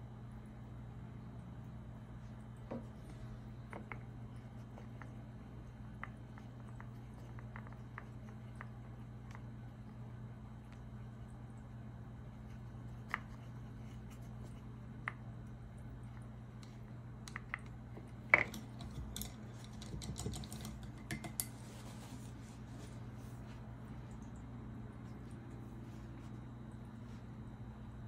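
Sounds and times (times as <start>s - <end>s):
low steady hum: 0.0s - 28.0s
paintbrush tapping plastic palette: 16.6s - 21.5s.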